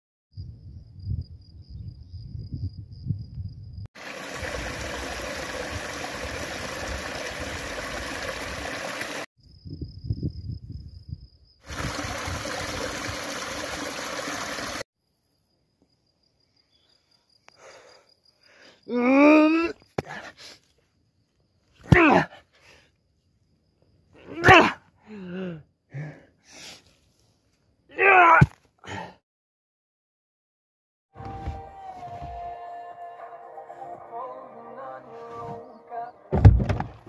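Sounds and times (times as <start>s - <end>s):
wind rumbling on microphone: 0.4s - 3.8s, 9.4s - 13.3s
stream rushing over waterfall: 4.0s - 9.3s, 11.7s - 14.8s
high insect chirr: 9.4s - 12.3s, 15.0s - 19.0s, 22.8s - 24.2s.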